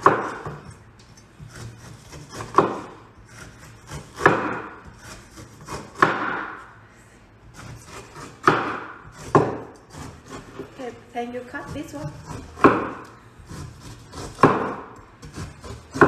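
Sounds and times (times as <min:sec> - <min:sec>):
cleaver chopping onto wooden board: 0:06.0 - 0:06.5, 0:08.4 - 0:09.6, 0:12.6 - 0:13.0, 0:14.4 - 0:14.8.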